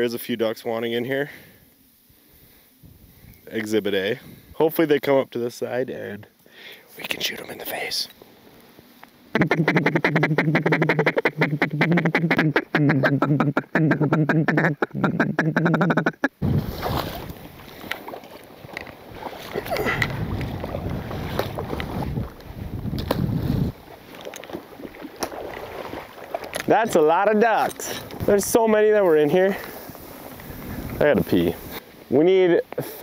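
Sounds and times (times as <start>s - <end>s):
wind on microphone: 2.8s - 3.5s, 16.4s - 18.0s, 18.6s - 26.8s, 29.8s - 31.8s
duck call pulsing notes: 9.3s - 16.3s.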